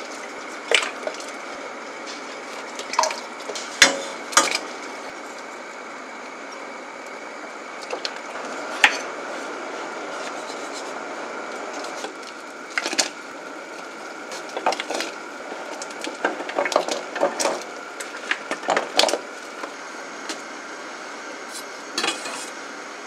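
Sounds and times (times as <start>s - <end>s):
wooden spoon scraping a pot: 10.0s - 11.0s.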